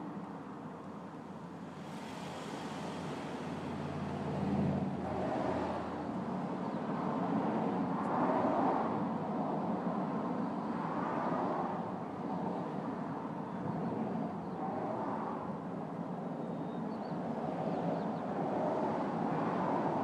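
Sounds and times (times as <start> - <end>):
road traffic noise: 0.0 - 12.9
vehicle passing: 1.7 - 6.1.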